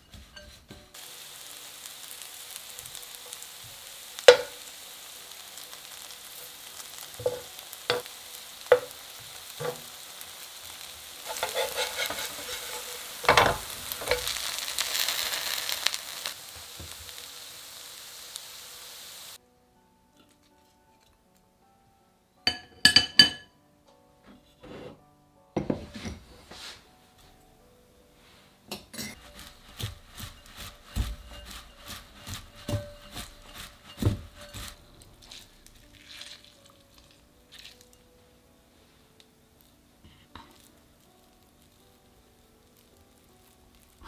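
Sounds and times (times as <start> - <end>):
quiet background music: 0.0 - 44.0
hands rubbing cabbage in bowl: 11.3 - 13.0, 29.2 - 36.5.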